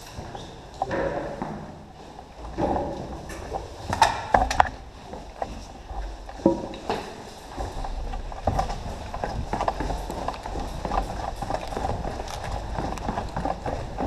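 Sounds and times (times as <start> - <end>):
hurried footsteps: 0.0 - 14.0
rifle and gear rattling: 3.1 - 14.0.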